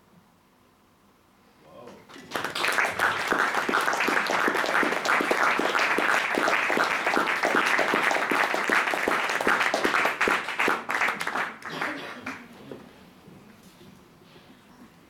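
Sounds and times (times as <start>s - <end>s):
audience applauding: 1.9s - 12.5s.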